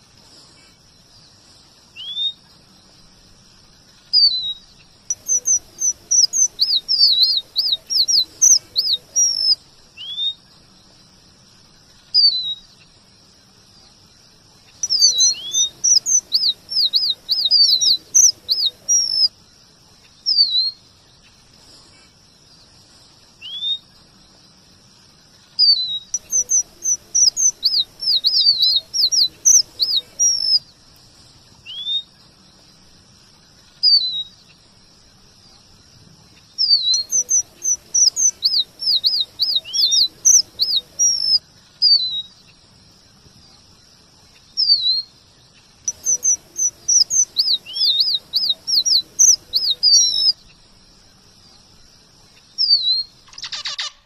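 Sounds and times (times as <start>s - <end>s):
finch singing whistled notes: 2.0s - 2.4s, 4.1s - 10.4s, 12.1s - 12.7s, 14.7s - 19.4s, 20.3s - 20.8s, 23.4s - 23.9s, 25.6s - 30.7s, 31.6s - 32.1s, 33.8s - 34.6s, 36.6s - 42.6s, 44.5s - 45.1s, 45.8s - 50.6s, 52.5s - 54.0s
bird call notes: 4.2s - 10.4s, 14.8s - 19.3s, 25.6s - 30.6s, 36.6s - 42.3s, 45.9s - 50.4s.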